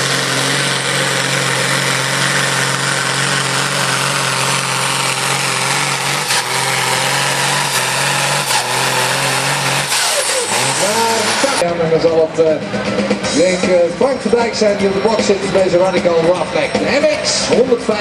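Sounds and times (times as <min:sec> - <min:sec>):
tractor diesel engine at full throttle: 0:00.0 - 0:11.7.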